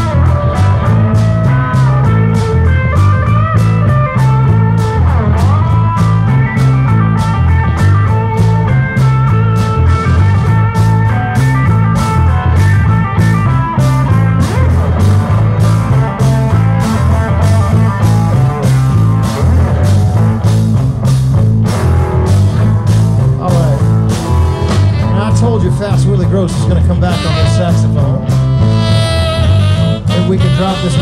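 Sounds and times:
bass guitar: 0.0 - 31.0
drum kit: 0.0 - 31.0
electric guitar lead: 0.0 - 31.0.

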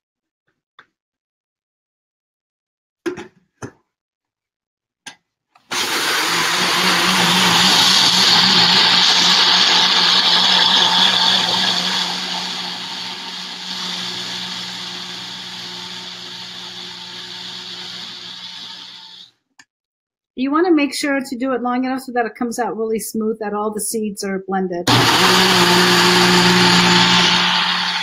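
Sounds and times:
blender motor whining: 5.7 - 19.3, 24.9 - 28.0.

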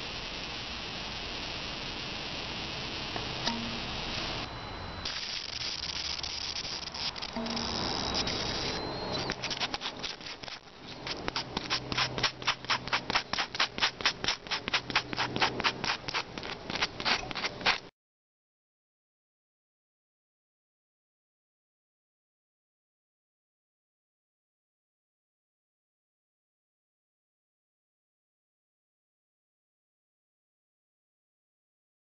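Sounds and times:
hand rubbing bicycle tyre: 5.1 - 17.9.

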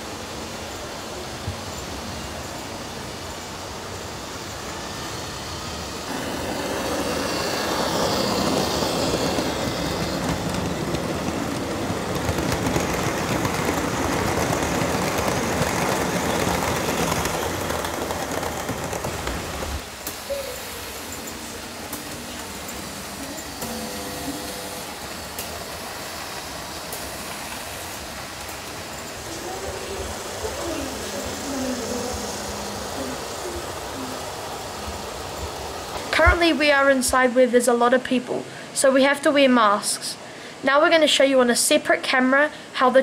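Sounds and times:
model train wheels rattling on track: 6.1 - 20.1.

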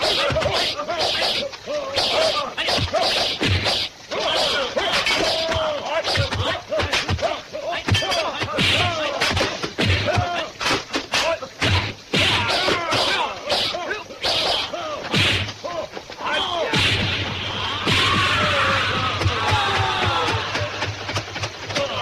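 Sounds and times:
punch and kick whacks: 0.0 - 1.4, 2.0 - 7.3, 7.9 - 15.6, 16.7 - 19.7
swishes: 0.0 - 7.1
fighters shouting and grunting: 0.0 - 21.0.

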